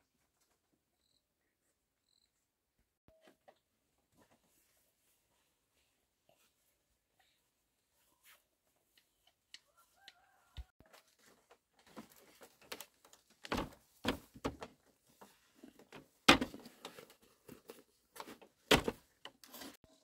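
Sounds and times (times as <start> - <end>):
objects knocking and thumping: 11.8 - 19.3.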